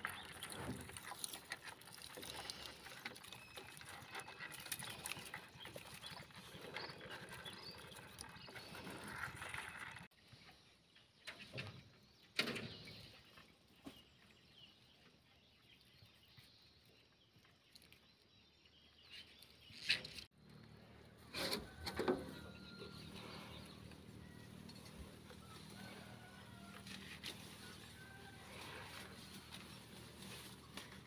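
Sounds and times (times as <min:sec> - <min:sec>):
bushes rustling: 0:21.2 - 0:31.0.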